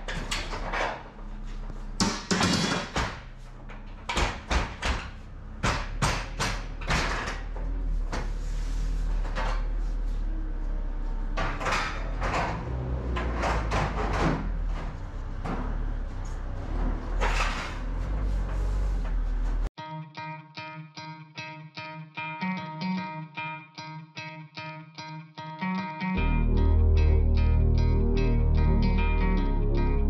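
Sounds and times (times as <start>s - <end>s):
steady low rumble: 26.2s - 30.0s.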